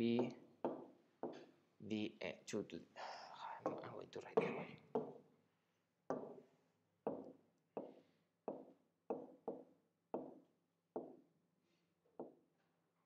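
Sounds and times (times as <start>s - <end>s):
pen knocking on glass screen: 3.7s - 5.2s, 7.1s - 10.4s.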